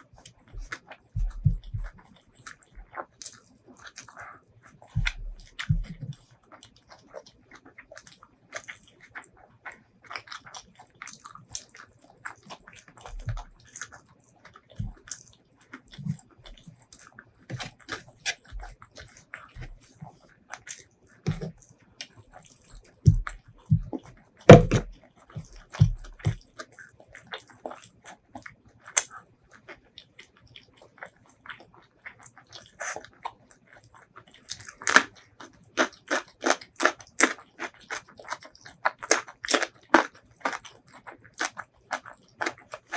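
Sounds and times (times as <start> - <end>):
wet chewing and lip smacks: 0.0 - 42.9
crisp cucumber crunches: 0.2 - 42.9
knocks and thuds on wooden tray: 23.1 - 24.9.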